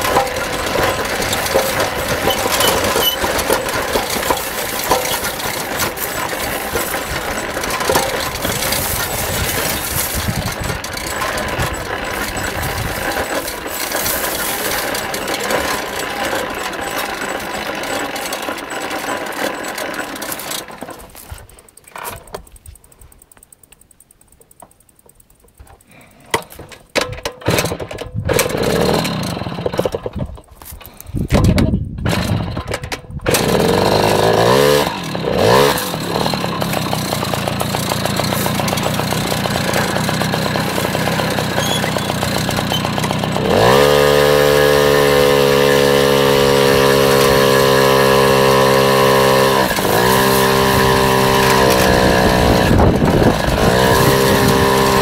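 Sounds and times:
knocks and rustles: 0.0s - 17.6s
small motorbike engine revving: 0.0s - 23.0s, 24.9s - 55.0s.

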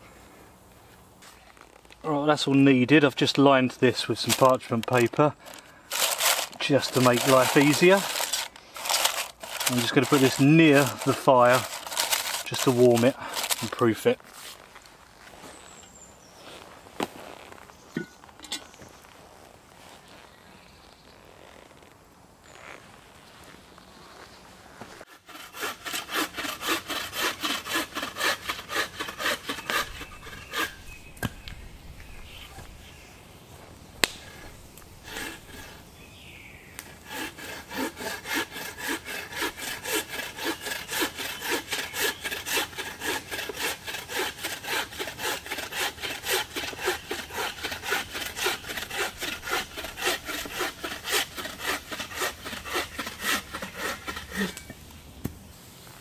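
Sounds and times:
saw rasping through log: 4.2s - 14.6s, 25.1s - 31.0s, 35.0s - 35.8s, 36.8s - 54.7s.

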